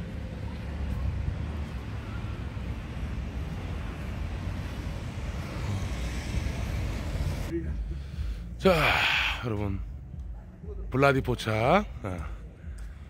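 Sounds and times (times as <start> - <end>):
distant traffic rumble: 0.0 - 8.4.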